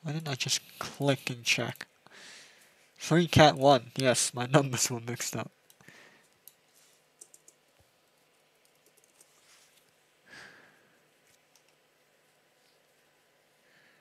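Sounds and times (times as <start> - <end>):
faint keyboard typing: 5.6 - 10.0, 11.2 - 12.0.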